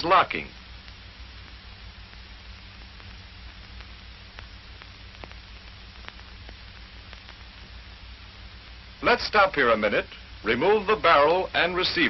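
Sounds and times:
film soundtrack hiss and hum: 0:00.0 - 0:12.0
faint crackle clicks: 0:00.5 - 0:08.9.

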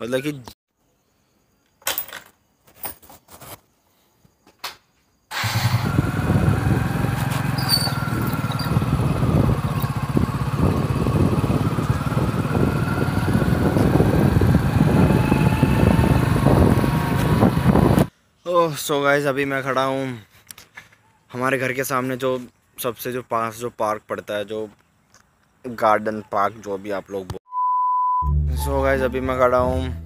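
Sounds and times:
motorcycle engine running: 0:05.3 - 0:18.1.

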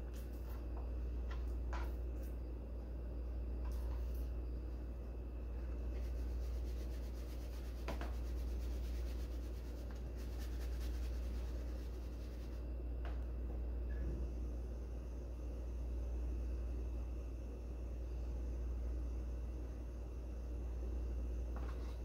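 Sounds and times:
low hum: 0:00.0 - 0:22.0
hands rubbing raw chicken: 0:05.9 - 0:12.6.

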